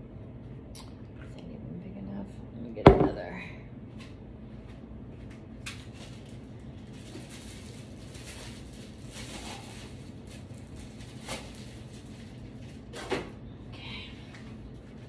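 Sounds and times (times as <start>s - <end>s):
low room hum: 0.0s - 15.0s
objects knocking: 2.8s - 3.2s.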